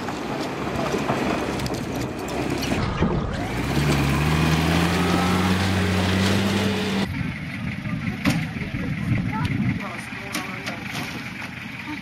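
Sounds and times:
suv engine driving past: 0:02.2 - 0:07.6.

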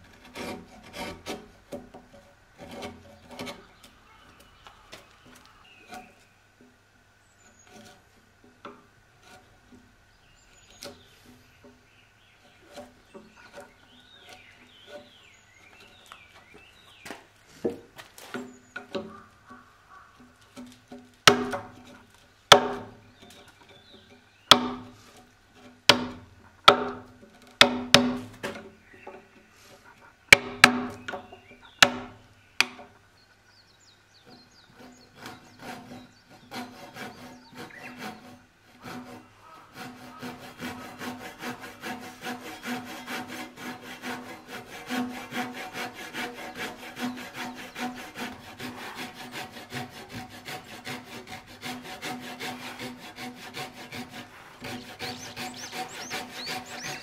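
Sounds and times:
handsaw sawing wood: 0:00.0 - 0:03.8, 0:20.5 - 0:23.1, 0:24.5 - 0:28.6, 0:29.6 - 0:31.2, 0:34.6 - 0:57.0
hammer striking chisel: 0:21.3 - 0:21.7, 0:22.5 - 0:22.8, 0:25.9 - 0:27.0.

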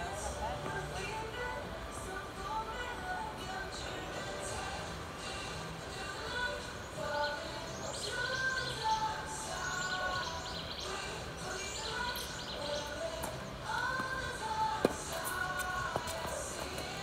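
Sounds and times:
faint music: 0:00.0 - 0:17.0
birds chirping: 0:06.3 - 0:17.0.

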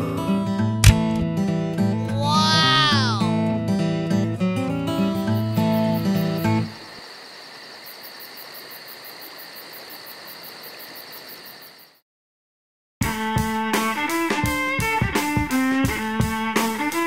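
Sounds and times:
insects chirping: 0:05.0 - 0:12.0.

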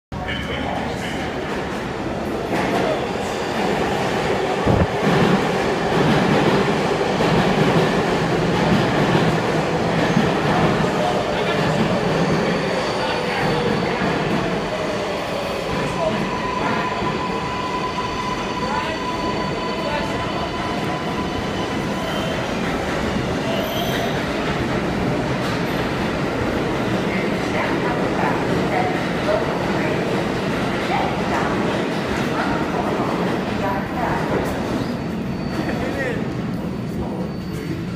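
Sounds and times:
train wheels rumbling on rails: 0:00.2 - 0:37.9
wheel and brake squeals: 0:23.4 - 0:24.2, 0:34.7 - 0:37.9.

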